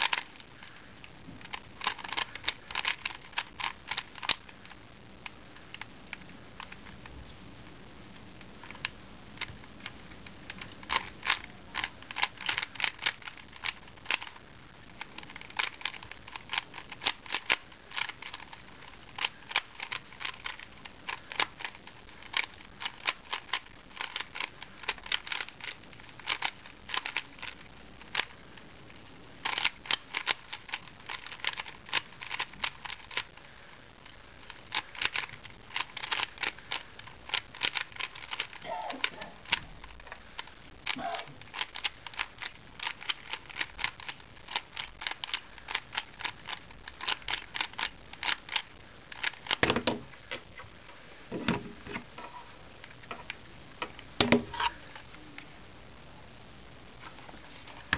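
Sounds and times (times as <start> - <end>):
puzzle cube clicking: 0.0 - 0.3, 1.4 - 7.1, 8.6 - 28.3, 29.4 - 33.3, 34.7 - 39.7, 40.4 - 50.1.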